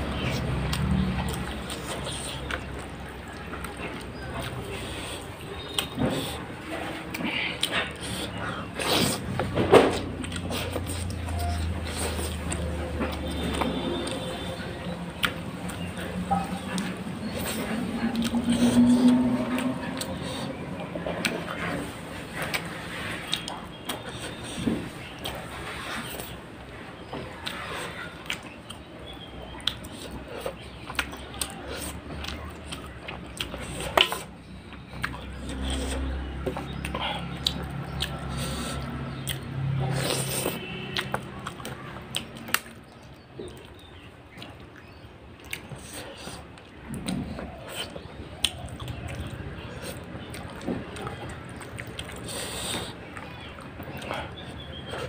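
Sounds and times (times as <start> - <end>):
chewing with wet smacks: 0.0 - 55.0
fingers squishing food: 27.0 - 55.0.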